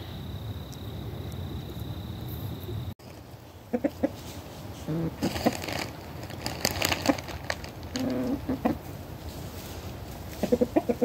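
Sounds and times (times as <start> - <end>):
rustling crackling noise: 2.3 - 11.0
chickens clucking: 3.1 - 6.0, 6.8 - 9.0, 10.2 - 11.0.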